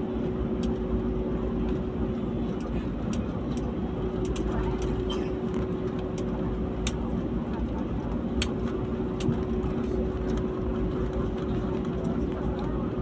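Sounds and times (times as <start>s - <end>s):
airliner cabin rumble: 0.0s - 13.0s.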